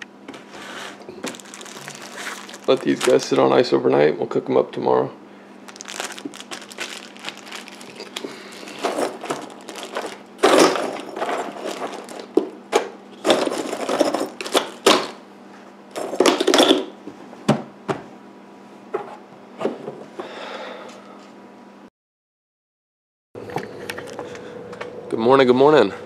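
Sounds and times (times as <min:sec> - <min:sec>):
steady low hum: 0:00.0 - 0:17.3
plastic bag rustling against ice: 0:01.2 - 0:03.6, 0:05.7 - 0:12.5, 0:13.2 - 0:15.2.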